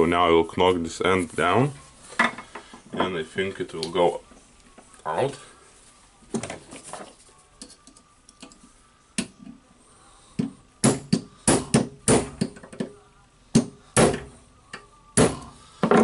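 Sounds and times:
hammer striking metal punch: 0:10.4 - 0:12.6, 0:13.6 - 0:14.4, 0:15.2 - 0:16.0.

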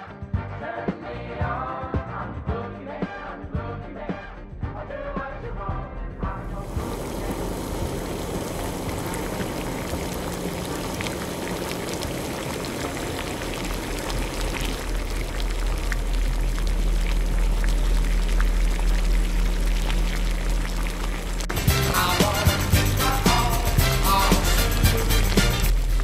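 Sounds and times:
low steady hum: 0:06.2 - 0:26.0
liquid boiling in a pot: 0:06.6 - 0:26.0.

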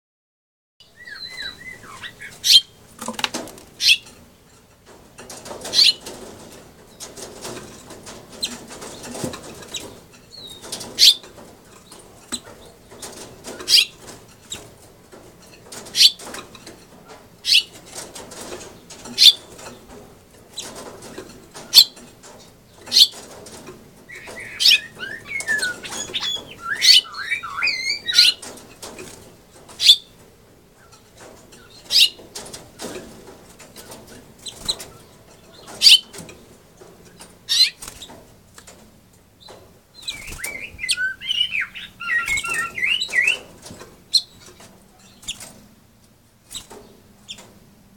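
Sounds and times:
finch chirping: 0:00.8 - 0:02.8, 0:03.8 - 0:04.2, 0:05.7 - 0:06.0, 0:09.7 - 0:11.2, 0:16.0 - 0:16.3, 0:17.4 - 0:17.8, 0:18.8 - 0:19.8, 0:22.8 - 0:23.2, 0:24.1 - 0:28.6, 0:29.7 - 0:30.2, 0:31.6 - 0:32.2, 0:34.4 - 0:36.2, 0:37.5 - 0:38.1, 0:39.4 - 0:45.4
finch warbling song: 0:00.8 - 0:02.8, 0:24.1 - 0:28.4, 0:40.0 - 0:43.5
bird fluttering in cage: 0:02.9 - 0:04.2, 0:05.2 - 0:16.8, 0:17.8 - 0:29.9, 0:31.1 - 0:45.6.

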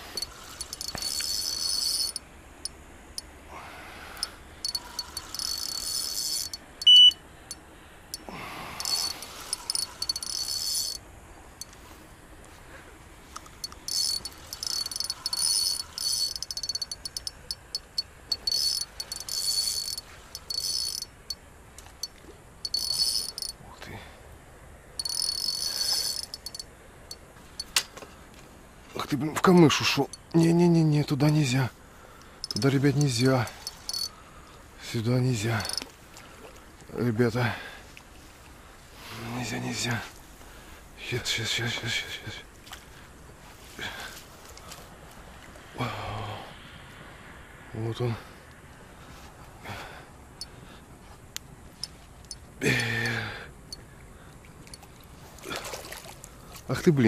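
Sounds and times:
night insects chirping: 0:00.0 - 0:28.8, 0:29.7 - 0:36.8, 0:37.7 - 0:56.6
short high beep: 0:06.5 - 0:07.2.

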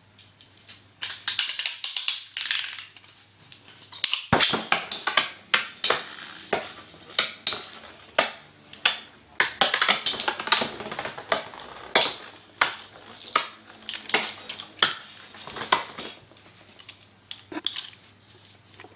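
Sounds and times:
spinning tops whirring: 0:05.4 - 0:08.1.

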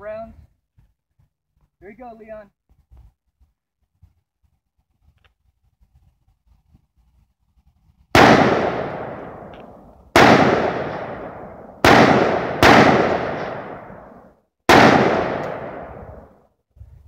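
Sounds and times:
rifle shots: 0:08.1 - 0:16.4.

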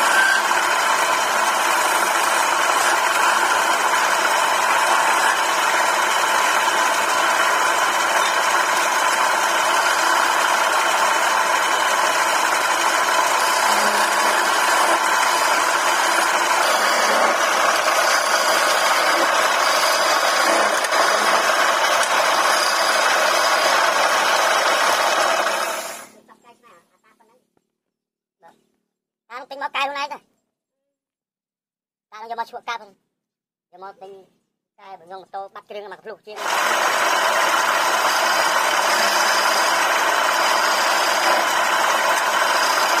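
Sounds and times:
chisel cutting spinning wood: 0:00.0 - 0:26.2, 0:36.4 - 0:43.0
wood lathe running: 0:00.0 - 0:26.2, 0:36.4 - 0:43.0.

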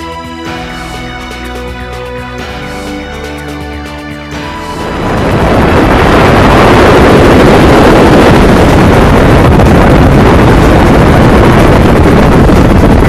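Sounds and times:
wind rushing: 0:00.5 - 0:13.0
aircraft engine: 0:04.3 - 0:13.0
wind buffeting microphone: 0:04.4 - 0:13.0.

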